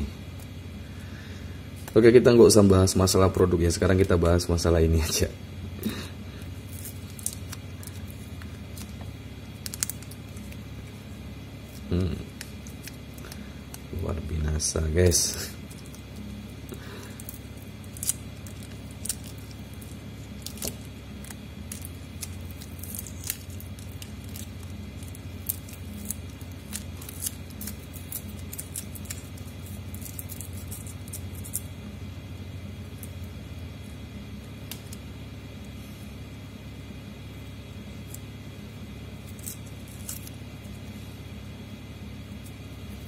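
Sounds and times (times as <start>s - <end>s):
steady low hum: 0.0s - 43.0s
plastic film crinkling: 6.4s - 14.0s, 15.1s - 31.8s, 39.1s - 41.0s.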